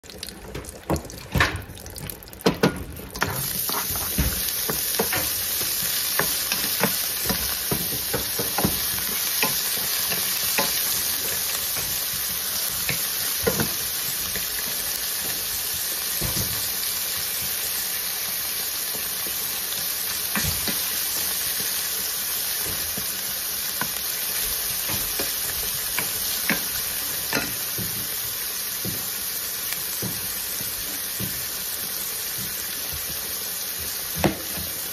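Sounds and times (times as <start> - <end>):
meat sizzling in hot oil: 0.0 - 34.9
wooden spoon scraping a pan: 3.5 - 13.8.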